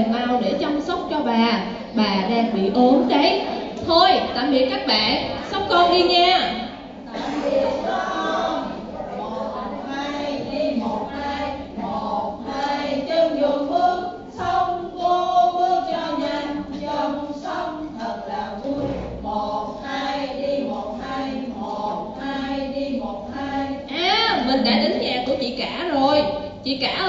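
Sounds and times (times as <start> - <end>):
group singing in chorus: 6.9 - 24.0.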